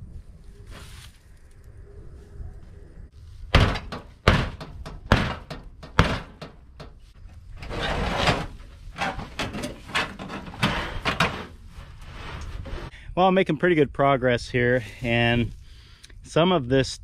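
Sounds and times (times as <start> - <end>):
tin sheet rattling and scraping: 7.6 - 12.9.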